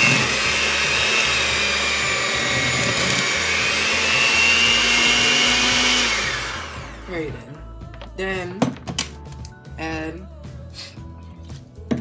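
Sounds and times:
beaters churning thick dough: 0:00.0 - 0:07.1
electric hand mixer whining: 0:00.0 - 0:07.5.

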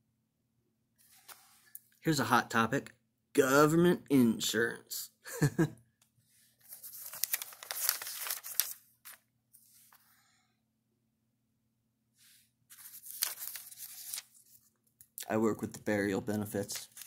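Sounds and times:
paper pages rustling: 0:01.0 - 0:01.7, 0:06.5 - 0:10.1, 0:12.7 - 0:17.0.

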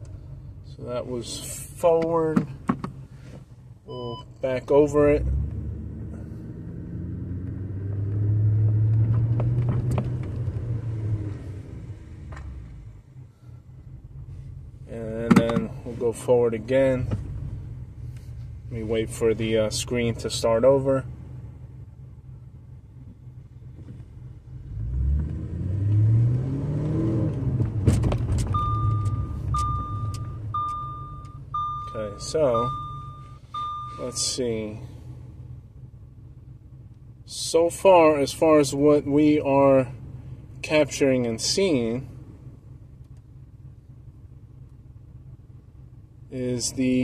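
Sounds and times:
car engine drone: 0:00.0 - 0:47.0
car engine pulling away: 0:04.9 - 0:14.6, 0:23.6 - 0:36.0
chime beeping: 0:28.6 - 0:34.3.

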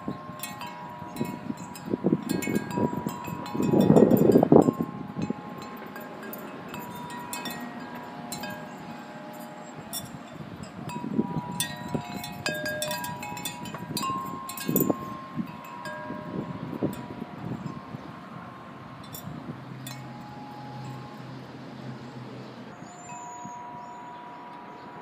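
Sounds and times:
metal wind chime ringing: 0:00.0 - 0:22.0, 0:22.7 - 0:25.0
wind noise on microphone: 0:00.0 - 0:24.0.

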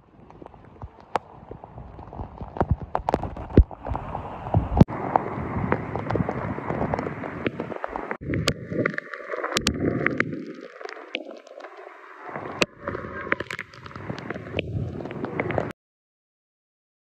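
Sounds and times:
wind rushing over microphone: 0:00.0 - 0:09.0, 0:12.5 - 0:15.7
heavy rain: 0:00.0 - 0:15.7
raindrops tapping: 0:00.1 - 0:15.7.

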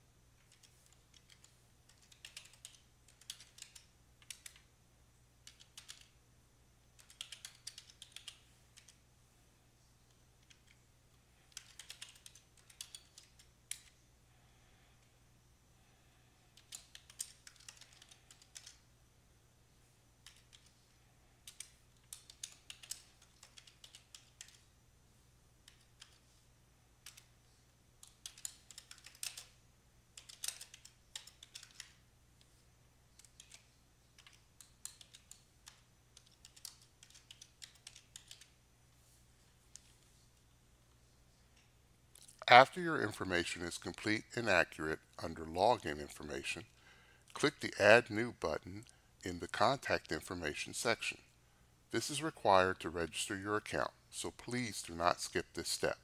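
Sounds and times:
low steady hum: 0:00.0 - 0:56.0
typing on computer keyboard: 0:00.4 - 0:04.7, 0:05.4 - 0:06.2, 0:07.0 - 0:09.0, 0:10.4 - 0:10.8, 0:11.4 - 0:14.0, 0:16.5 - 0:18.8, 0:20.2 - 0:20.7, 0:21.4 - 0:24.7, 0:25.6 - 0:26.4, 0:27.0 - 0:27.4, 0:28.0 - 0:38.6.

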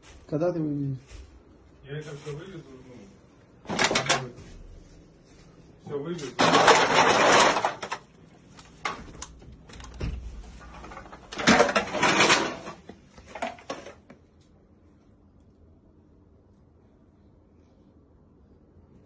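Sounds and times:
rustling and clattering: 0:03.6 - 0:05.6, 0:06.2 - 0:14.2.

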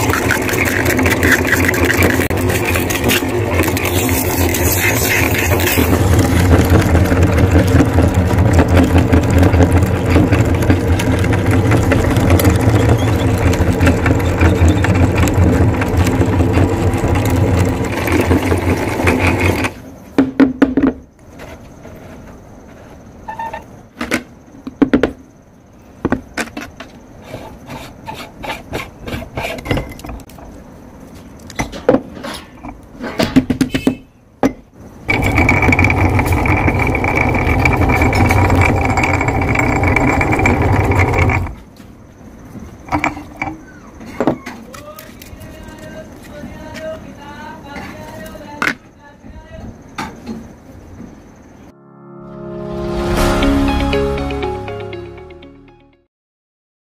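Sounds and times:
meat grinder motor humming: 0:00.0 - 0:19.7, 0:35.1 - 0:41.6.

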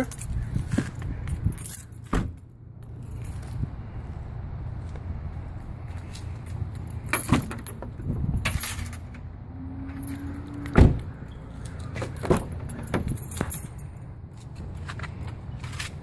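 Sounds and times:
car door thud: 0:10.7 - 0:11.0.

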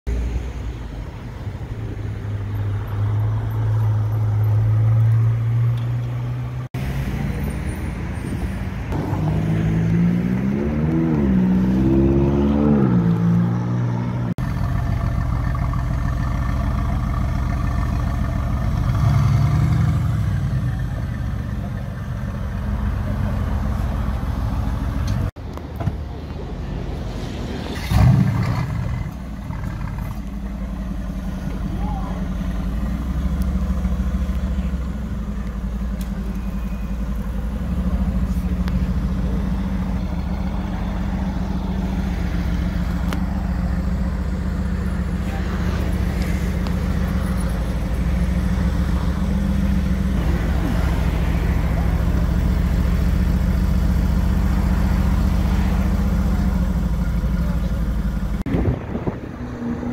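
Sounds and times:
car engine revving: 0:08.9 - 0:15.9
car engine idling: 0:14.3 - 0:26.7, 0:28.6 - 0:59.9.

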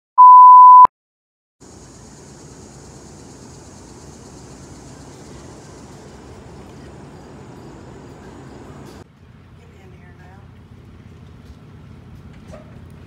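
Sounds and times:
electronic beep: 0:00.2 - 0:00.9.

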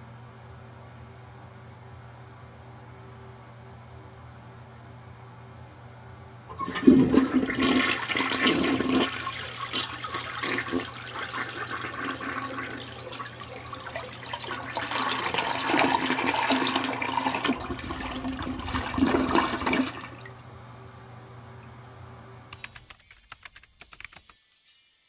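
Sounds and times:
toilet flushing: 0:06.5 - 0:21.0.

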